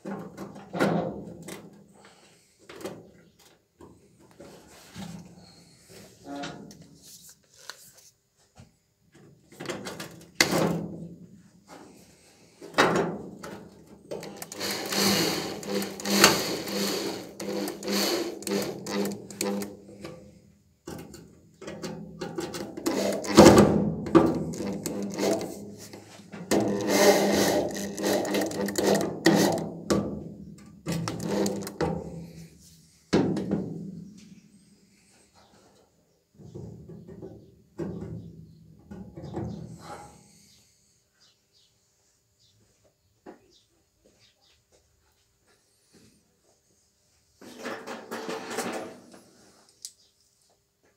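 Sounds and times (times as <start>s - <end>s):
cordless drill driving screws: 14.1s - 19.8s, 22.8s - 29.7s, 30.9s - 31.8s.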